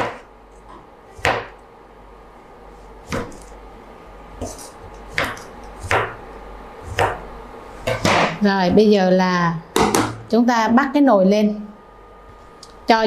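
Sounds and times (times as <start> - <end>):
knife cutting tomato: 4.4 - 6.2.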